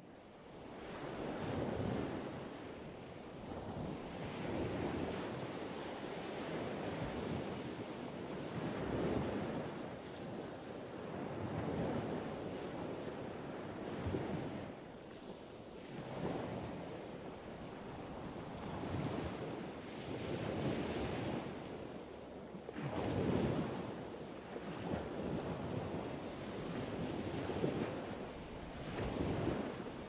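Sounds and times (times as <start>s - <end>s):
wind buffeting microphone: 24.6s - 30.0s.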